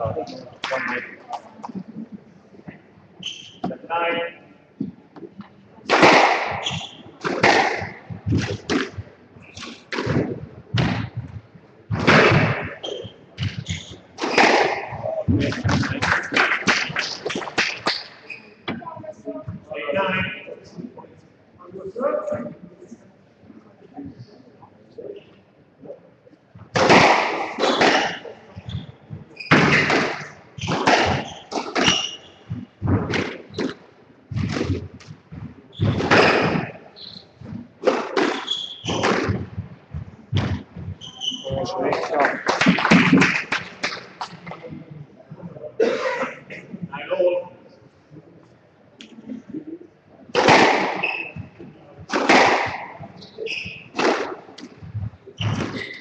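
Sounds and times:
shoes squeaking on wooden floor: 0:01.7 - 0:03.8, 0:06.5 - 0:11.5, 0:12.4 - 0:16.0, 0:27.6 - 0:42.0, 0:50.9 - 0:51.8, 0:52.6 - 0:56.0
squash ball hitting rackets and walls: 0:05.9 - 0:11.3, 0:11.9 - 0:18.2, 0:26.7 - 0:44.0, 0:50.3 - 0:56.0.

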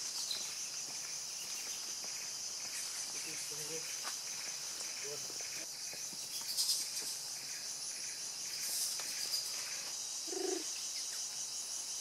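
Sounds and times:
chorus of forest insects: 0:00.0 - 0:12.0.

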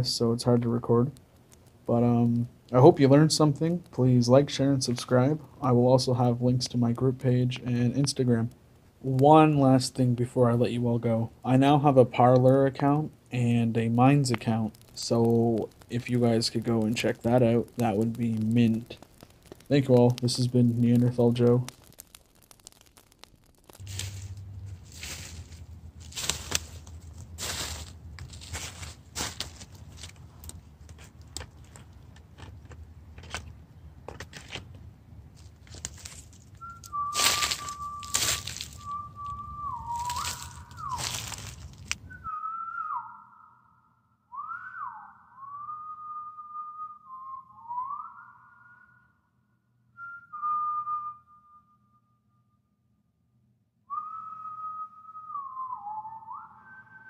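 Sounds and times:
crunching of leaves and snow: 0:17.0 - 0:31.8, 0:35.4 - 0:42.0
person whistling a long note: 0:36.6 - 0:41.4, 0:42.1 - 0:49.3, 0:49.9 - 0:52.2, 0:53.9 - 0:57.0.

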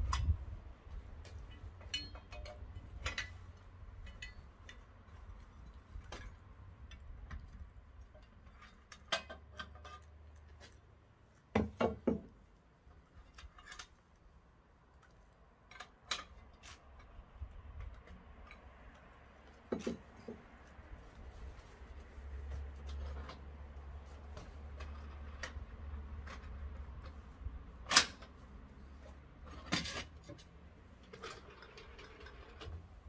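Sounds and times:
low steady rumble: 0:00.0 - 0:08.6
metal parts clicking and knocking: 0:01.2 - 0:04.8.

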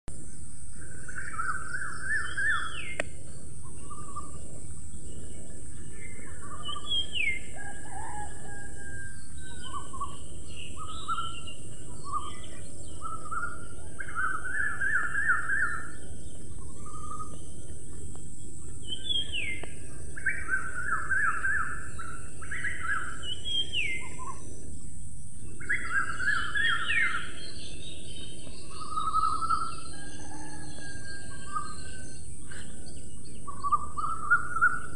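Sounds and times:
songbird singing: 0:00.1 - 0:34.9
high-pitched whine: 0:08.4 - 0:34.9.

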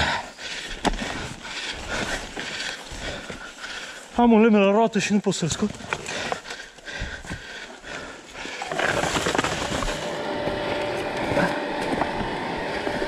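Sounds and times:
rough scraping and clattering: 0:08.4 - 0:10.2.

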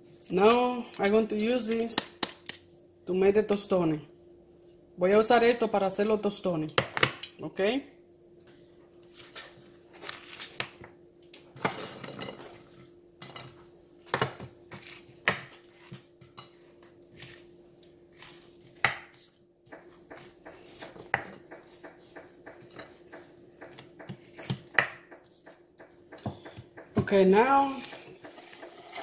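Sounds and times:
pieces clattering on plate: 0:11.6 - 0:13.6.

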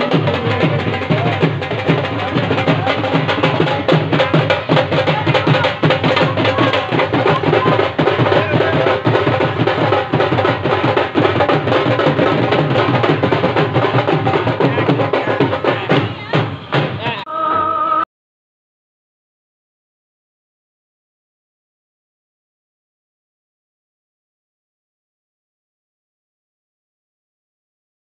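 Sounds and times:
festival music with fast drumming: 0:00.0 - 0:18.0.

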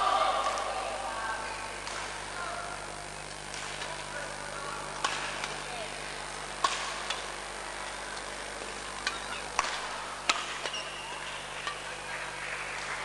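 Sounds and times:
murmur of voices: 0:00.0 - 0:06.6, 0:10.8 - 0:13.0
rackets smacking shuttlecock: 0:05.0 - 0:05.6, 0:09.0 - 0:11.9.

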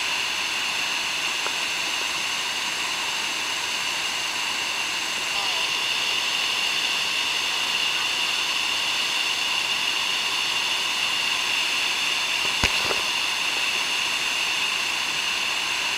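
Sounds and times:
sharp click: 0:12.4 - 0:13.0.

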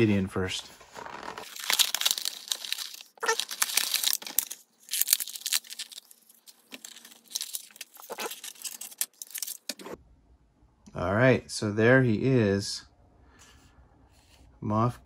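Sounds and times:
plastic packaging crackling: 0:01.1 - 0:10.0.

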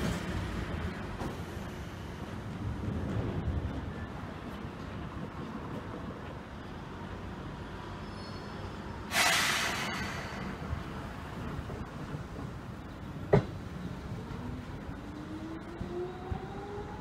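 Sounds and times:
train low rumble: 0:00.0 - 0:17.0
air brakes hissing: 0:08.2 - 0:11.0.

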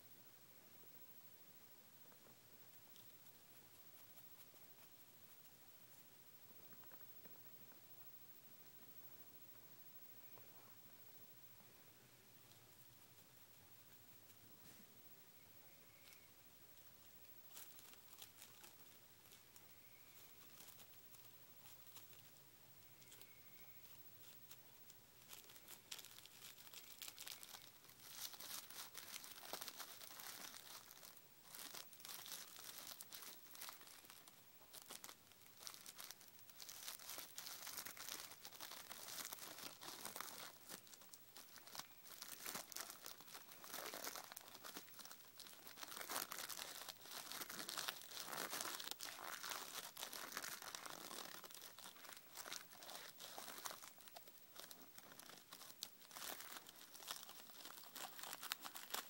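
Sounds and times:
rolling paper crinkling: 0:16.0 - 0:59.0.

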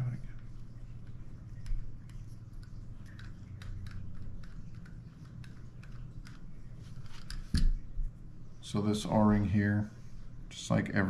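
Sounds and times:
steady low hum: 0:00.0 - 0:11.0
small clicks and taps: 0:00.3 - 0:07.8.

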